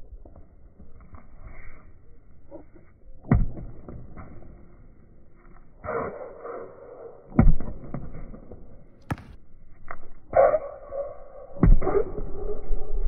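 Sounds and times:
basketball bouncing on hard court: 7.4 - 9.4.

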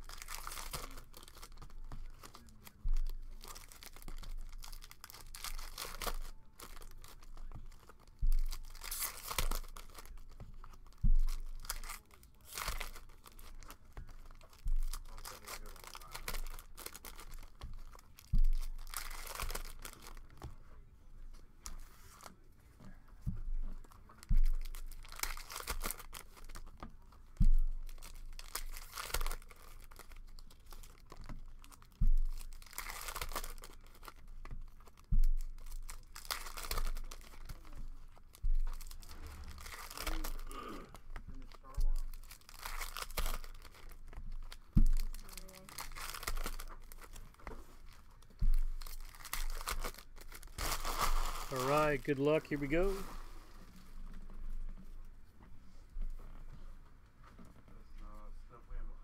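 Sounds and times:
dull thumps: 0.0 - 12.0, 41.0 - 51.5
foil wrappers tearing and crinkling: 0.0 - 20.5, 23.8 - 53.2.

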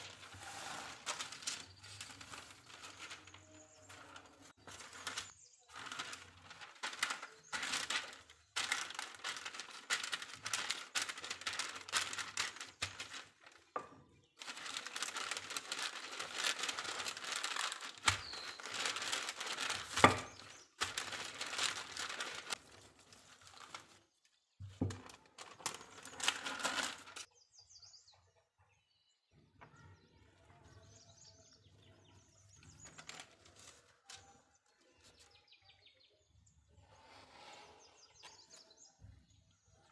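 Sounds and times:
baking paper crinkling under rolling pin: 0.0 - 27.3, 32.4 - 35.3.

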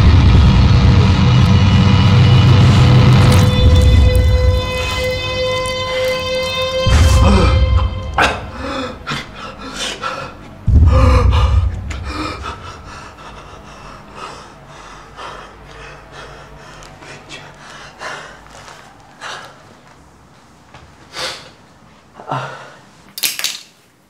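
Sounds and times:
deep low boom: 0.0 - 9.6, 10.5 - 13.7
man gasping in pain: 8.2 - 16.6.

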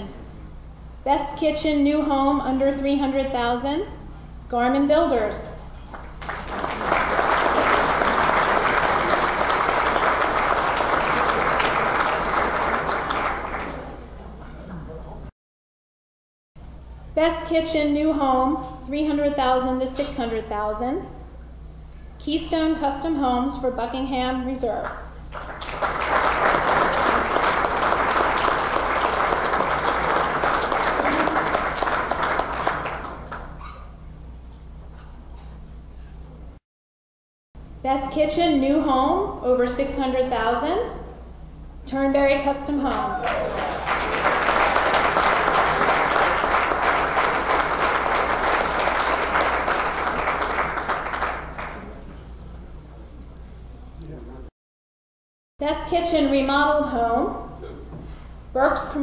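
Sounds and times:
audience applauding: 5.9 - 14.4, 25.3 - 33.7, 42.9 - 52.2.

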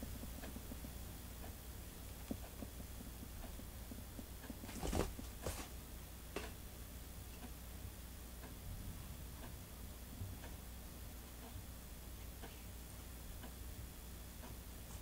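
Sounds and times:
faint steady ticking: 0.0 - 4.7, 6.0 - 15.0
kitten rustling scuffle: 4.5 - 5.8.

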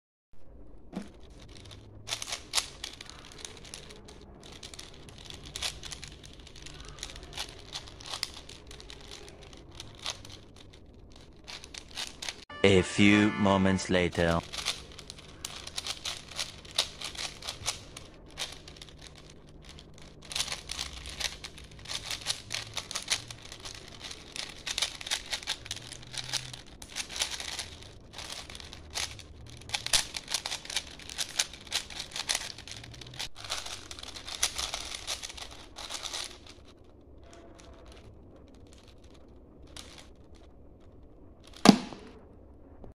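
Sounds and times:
puzzle cube clicking as turned: 1.1 - 12.4, 14.4 - 36.7, 37.6 - 40.5
short loud hit: 41.7 - 42.2.

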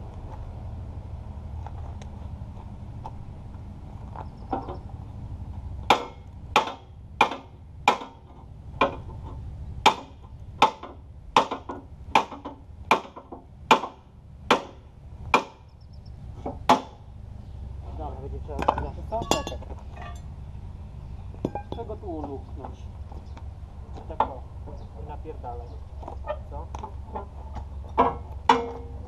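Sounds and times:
hammer striking steel: 18.6 - 20.2.

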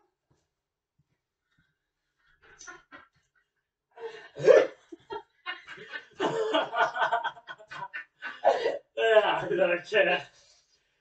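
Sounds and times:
man laughing: 4.5 - 9.2.

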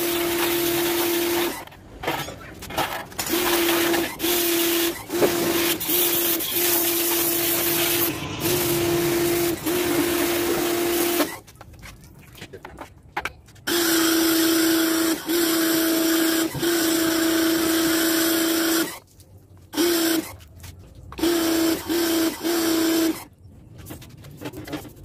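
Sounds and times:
pressure washer hum: 0.0 - 1.8, 2.6 - 11.5.

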